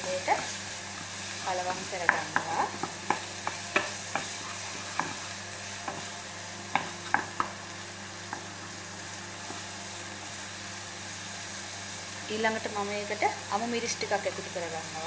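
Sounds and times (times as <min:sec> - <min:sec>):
vegetables sizzling in hot oil: 0:00.0 - 0:15.0
wooden spoon knocking pan: 0:06.7 - 0:07.6.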